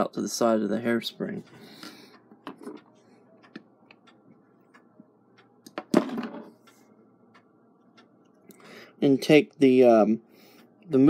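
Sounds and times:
small clock parts clicking: 1.4 - 9.3.

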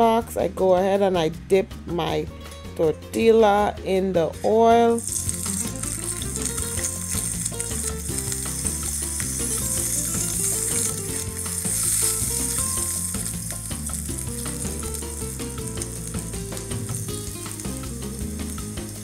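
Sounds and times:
tortilla sizzling in a skillet: 4.9 - 19.0.

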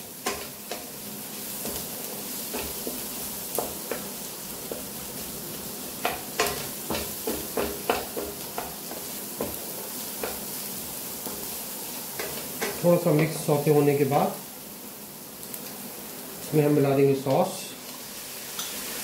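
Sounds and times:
food sizzling in a pan: 0.0 - 19.0
spatula knocking and scraping pan: 0.2 - 0.9, 1.6 - 5.0, 6.0 - 10.6, 12.1 - 12.8.

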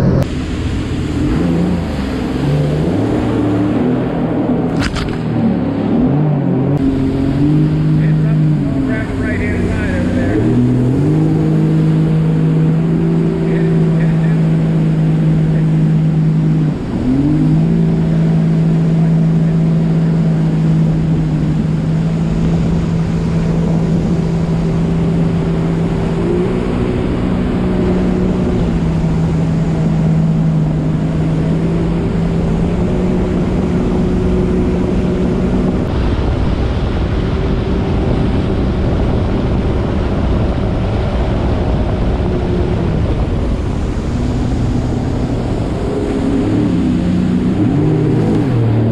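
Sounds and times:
jet ski engine running: 0.0 - 48.9.

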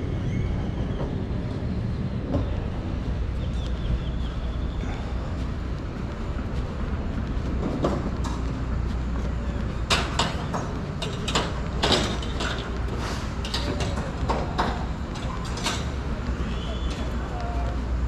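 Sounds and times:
low street rumble: 0.0 - 18.0
sharp clicks and knocks: 9.8 - 16.0.

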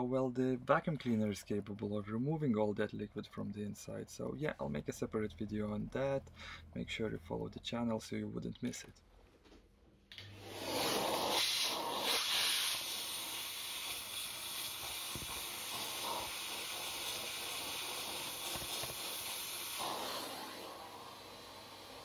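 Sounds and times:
vacuum suction hiss: 10.1 - 22.0.

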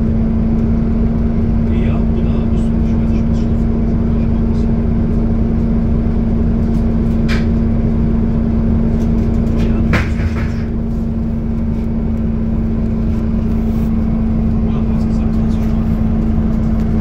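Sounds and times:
bus engine hum: 0.0 - 17.0.

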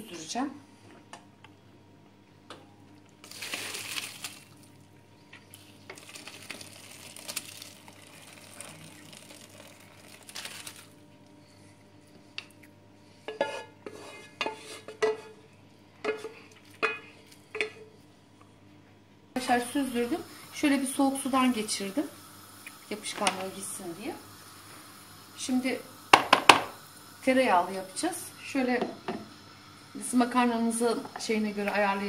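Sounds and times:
water pouring into colander: 3.2 - 4.8, 5.5 - 11.0
wooden spoon scraping: 13.4 - 15.0.

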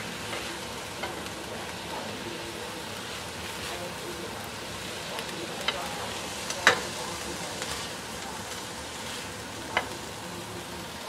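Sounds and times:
oil sizzling: 0.0 - 11.0
spatula scraping a wok: 2.9 - 10.2.

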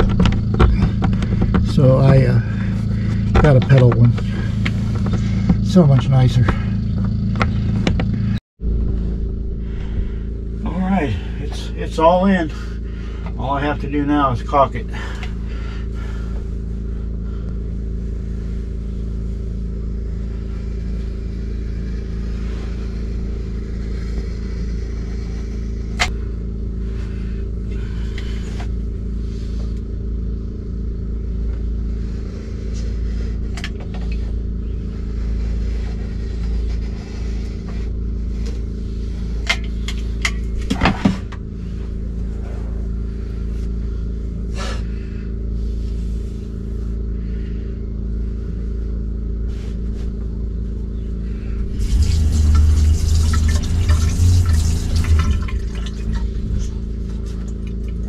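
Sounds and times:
low mechanical hum: 0.0 - 58.0.

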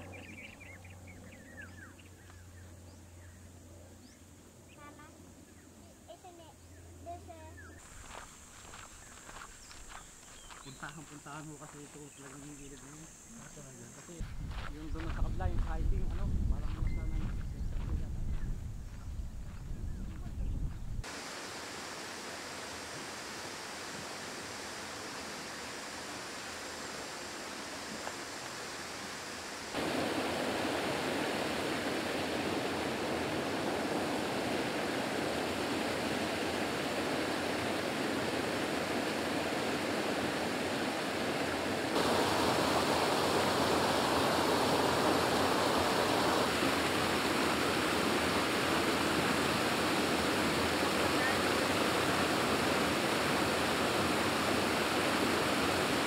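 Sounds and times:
waterfall rushing into pool: 21.0 - 56.0.

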